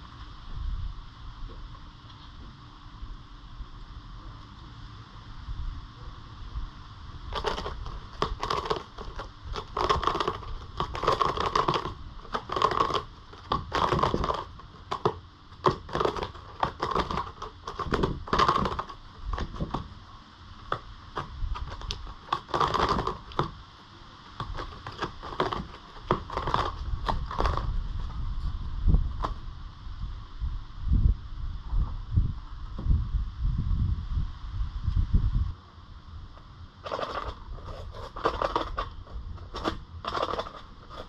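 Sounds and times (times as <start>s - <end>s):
rabbit scratching cardboard: 7.2s - 23.6s, 24.4s - 29.4s, 36.8s - 41.0s.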